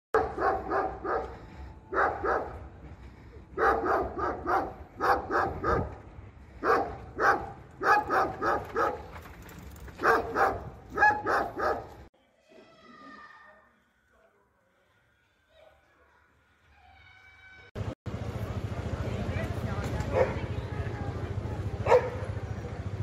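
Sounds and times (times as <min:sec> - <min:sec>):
dog barking: 0:00.2 - 0:02.6, 0:03.6 - 0:05.9, 0:06.6 - 0:09.1, 0:10.0 - 0:11.9, 0:20.1 - 0:20.5, 0:21.8 - 0:22.3.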